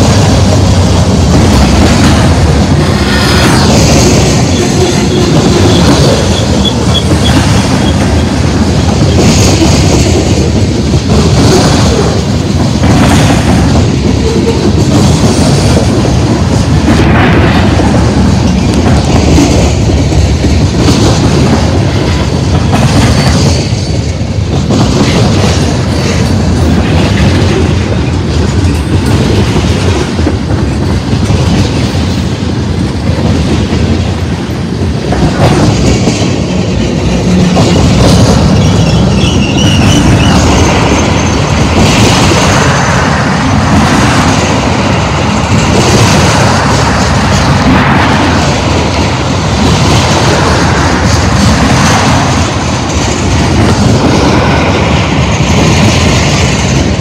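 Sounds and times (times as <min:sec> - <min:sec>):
steel wheels rumbling on rail: 0:00.0 - 0:57.0
high wheel squeal: 0:38.4 - 0:41.4.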